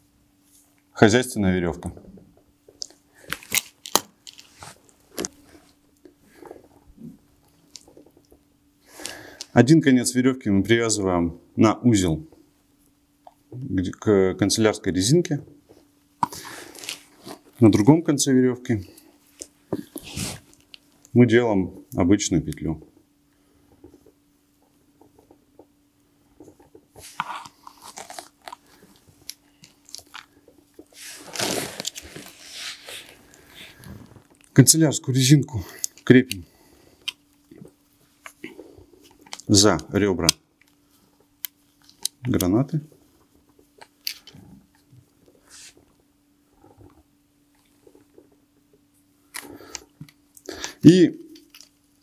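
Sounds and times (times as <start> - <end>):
faint steady hum: 0.0 - 52.0
crinkling and rustling: 1.9 - 6.8, 26.4 - 34.6.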